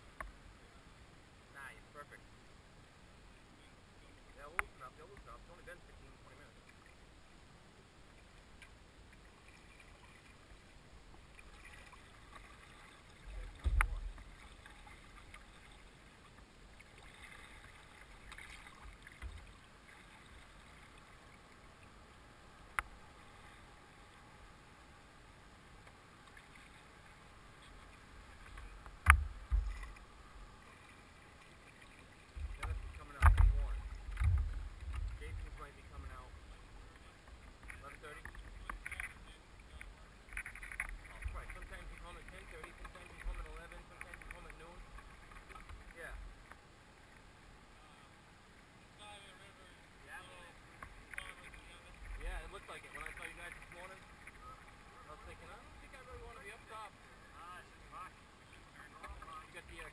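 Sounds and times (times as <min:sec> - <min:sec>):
water washing along hull: 0:08.1 - 0:25.0, 0:25.6 - 0:47.4, 0:49.0 - 0:59.9
knocks and thumps: 0:29.0 - 0:29.9.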